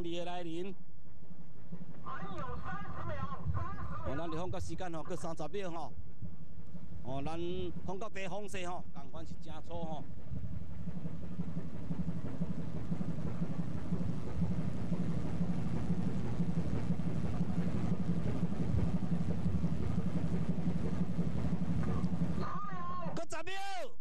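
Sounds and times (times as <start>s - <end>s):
boat engine rumbling: 9.8s - 22.4s.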